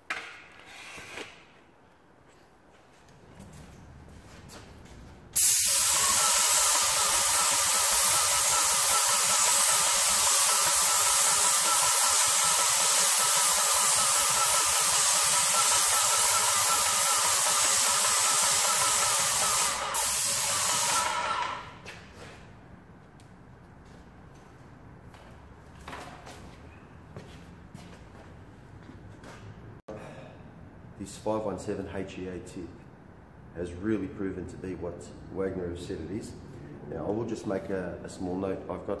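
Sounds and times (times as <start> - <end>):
paint spray gun hissing: 5.4 - 21.7.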